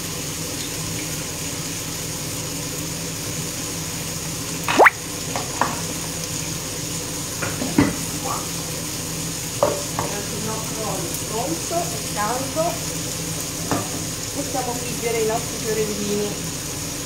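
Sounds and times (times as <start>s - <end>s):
food sizzling in frying pan: 0.0s - 17.0s
short rising squeak: 4.7s - 5.0s.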